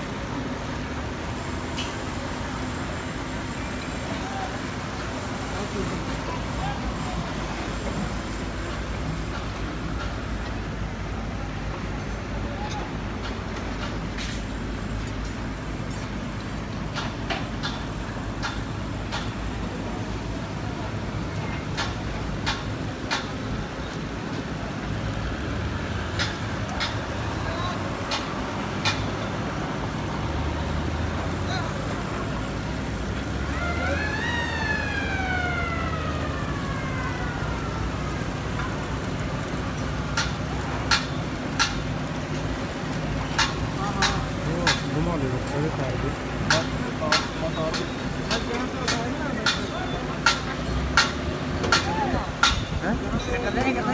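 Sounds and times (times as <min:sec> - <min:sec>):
machinery rumble: 0:00.0 - 0:53.9
siren winding up and down: 0:33.4 - 0:38.3.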